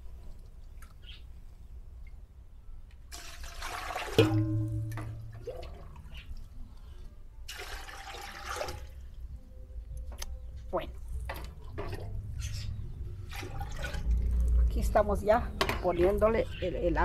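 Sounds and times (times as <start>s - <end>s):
water pouring into pot: 3.1s - 6.1s, 7.5s - 9.0s, 13.2s - 14.7s.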